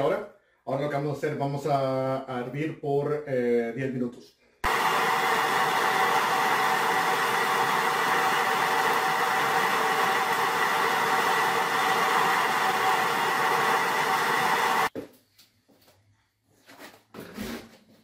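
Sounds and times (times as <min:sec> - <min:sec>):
propane burner roaring: 0:04.6 - 0:14.9.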